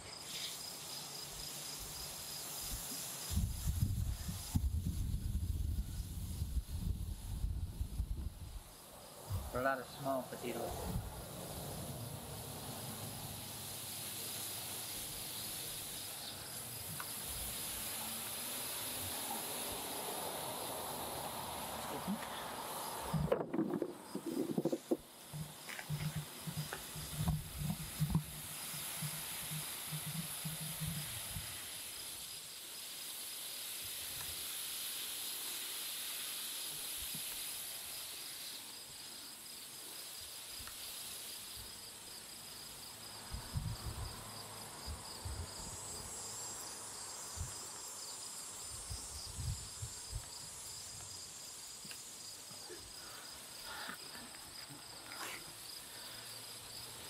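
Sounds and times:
insects trilling: 0.0 - 57.0
soft hiss: 0.0 - 57.0
thumps and rustles in soil: 23.1 - 31.5.

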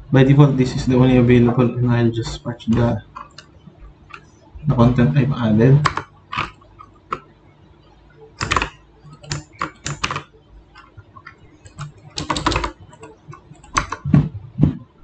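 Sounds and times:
computer keyboard tapping: 2.6 - 5.0, 5.8 - 7.3, 8.3 - 15.0.

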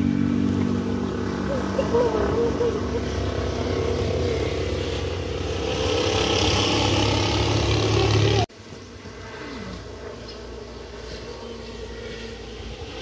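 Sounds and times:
motor engine running: 0.0 - 8.5
background hum: 0.0 - 13.0.

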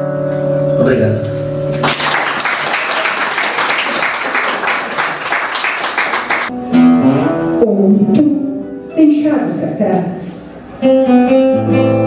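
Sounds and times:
acoustic guitar: 6.5 - 12.0.

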